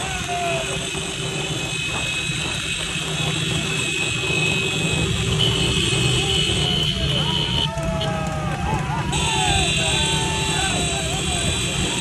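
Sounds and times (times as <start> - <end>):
motorcycle engines rumbling: 0.0 - 12.0
road noise: 0.0 - 12.0.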